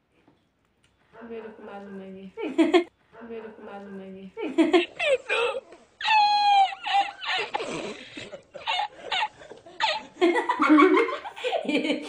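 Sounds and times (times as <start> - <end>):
people laughing: 4.4 - 12.0.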